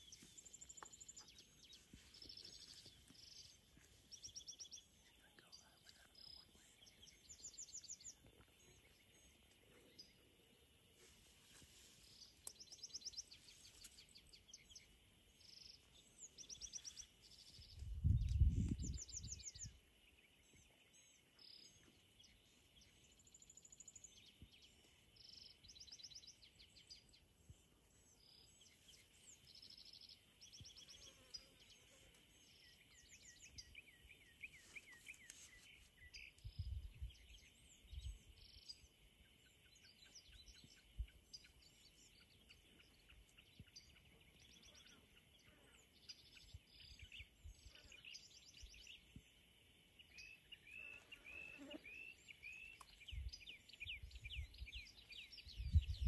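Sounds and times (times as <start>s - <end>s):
faint steady high hiss: 0.0s - 56.0s
songbirds chirping and trilling: 0.0s - 56.0s
low rumble on microphone: 17.6s - 19.7s, 55.5s - 56.0s.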